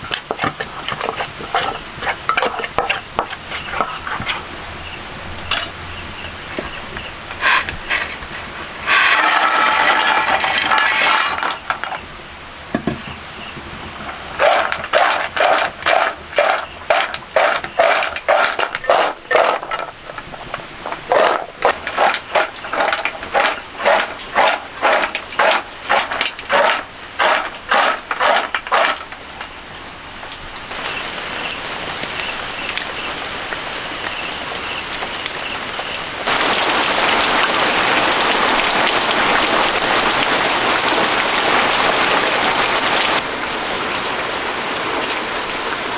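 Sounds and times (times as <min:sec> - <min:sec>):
snacks rattling in a steel bowl: 0:00.0 - 0:04.4, 0:08.8 - 0:12.0, 0:14.4 - 0:29.5
steady rain: 0:04.3 - 0:45.9.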